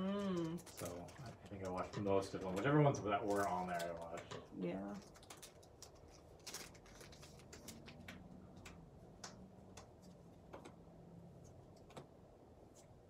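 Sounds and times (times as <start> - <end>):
trading cards flipping: 5.0 - 10.8.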